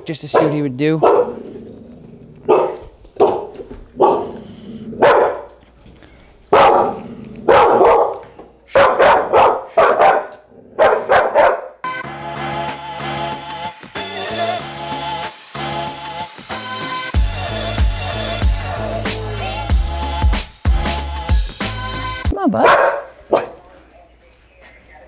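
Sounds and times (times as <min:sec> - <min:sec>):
puppy barking: 0:00.3 - 0:01.5, 0:02.4 - 0:04.4, 0:05.0 - 0:05.6, 0:06.5 - 0:11.8, 0:22.6 - 0:23.7
background music: 0:11.8 - 0:22.6.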